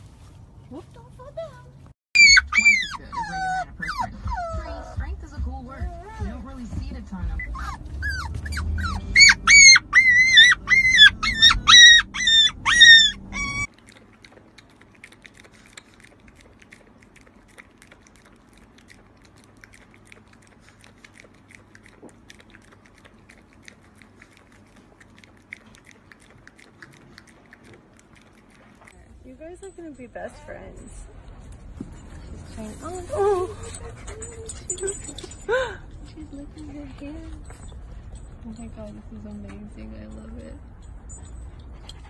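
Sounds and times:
low car rumble: 0.0 - 42.0
puppy yipping and whining: 2.2 - 5.1, 7.3 - 18.6, 32.8 - 36.3
dog lapping water: 13.1 - 29.0.

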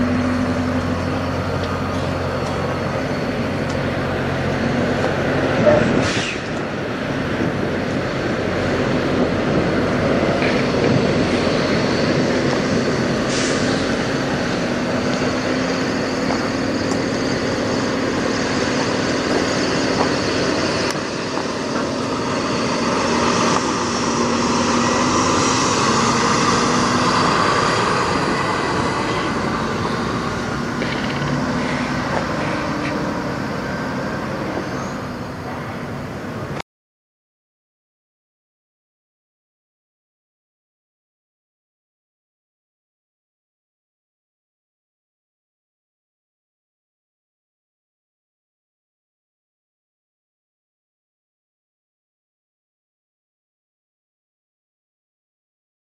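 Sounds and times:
diesel trucks idling: 0.0 - 36.6.

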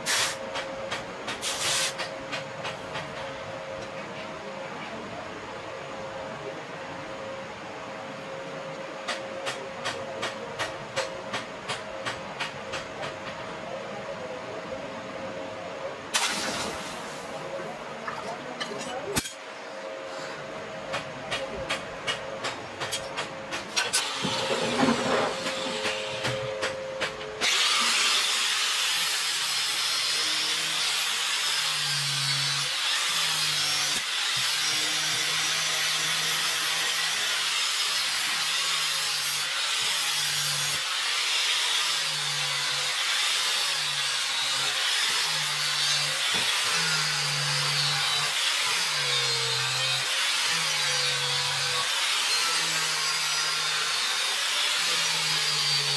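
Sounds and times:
angle grinder grinding steel: 23.8 - 26.5, 27.4 - 55.9.

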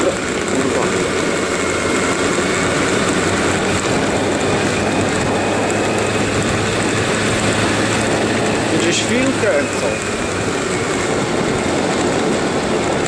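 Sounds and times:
motor scooter engine running: 0.0 - 13.0
wind and road noise: 0.0 - 13.0.

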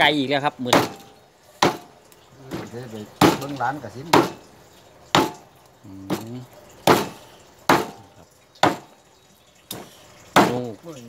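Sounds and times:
meat cleaver chopping on wood: 0.7 - 1.0, 1.6 - 1.9, 4.1 - 4.4, 5.2 - 5.4, 6.9 - 8.0, 8.6 - 8.9, 10.4 - 10.7
man's voice murmuring: 5.8 - 6.6.

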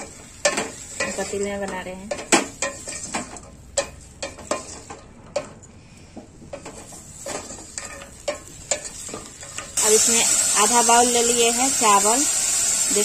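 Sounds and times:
vegetables sizzling: 0.0 - 5.0, 6.8 - 13.0
wooden spoon scraping metal pot: 0.0 - 5.6, 6.4 - 9.8.

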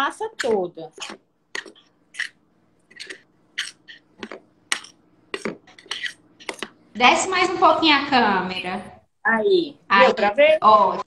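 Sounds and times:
spoon scraping bowl: 0.3 - 6.8.

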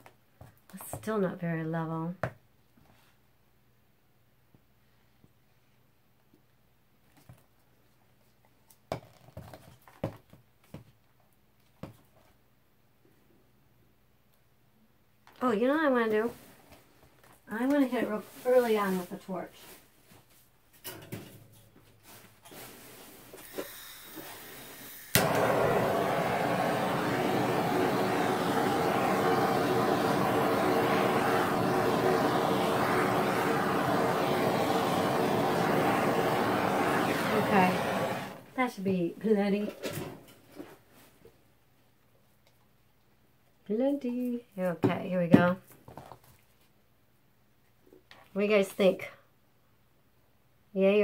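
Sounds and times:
torch flame hissing: 23.4 - 38.5
torch igniting click: 25.0 - 38.4.

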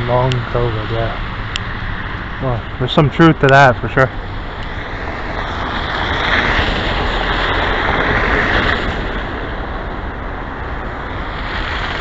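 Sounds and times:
street traffic rushing: 0.0 - 12.0
wind rumbling on microphone: 0.0 - 12.0.

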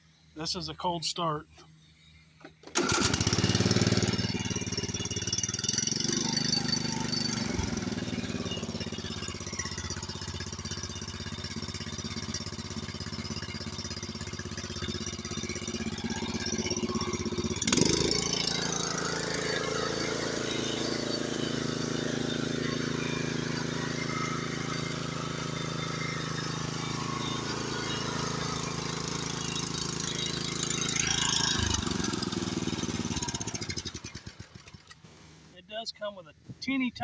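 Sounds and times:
riding mower engine starting: 2.4 - 35.5.

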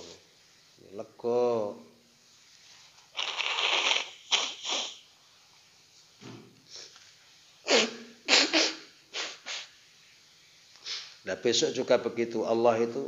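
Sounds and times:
man blowing nose into tissue: 3.1 - 5.2, 7.6 - 9.8, 10.8 - 11.2.

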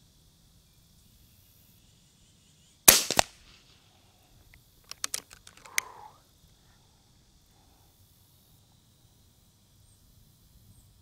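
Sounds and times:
air rifle shot crack: 2.9 - 3.8
quieter crack: 2.9 - 3.9, 4.9 - 6.2
light clicks and taps: 4.8 - 5.9.

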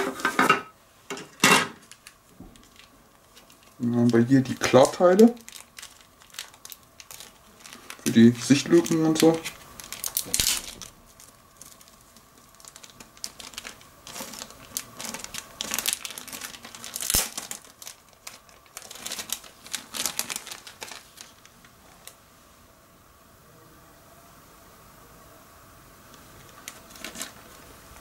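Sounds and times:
plastic bag crinkling: 1.8 - 22.2, 26.3 - 28.0.

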